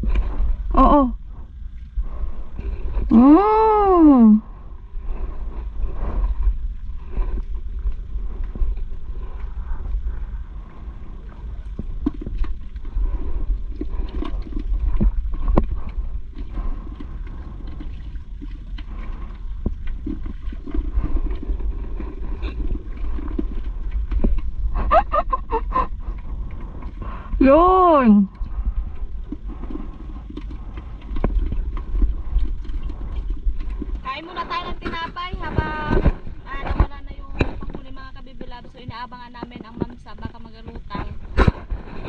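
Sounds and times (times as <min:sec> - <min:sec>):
water lapping against canoe: 0:00.0 - 0:42.0
wind rumble: 0:00.0 - 0:42.0
person speaking: 0:27.4 - 0:28.3.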